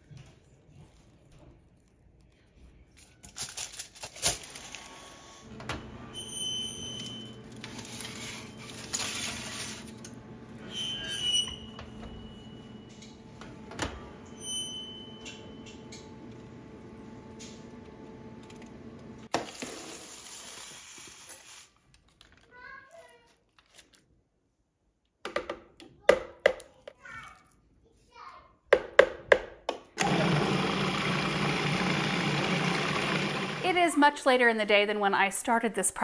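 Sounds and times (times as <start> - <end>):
oven humming: 5.1 - 19.3, 30.0 - 34.0
oven control panel beeps: 5.7 - 7.5, 10.9 - 13.1, 14.2 - 16.1.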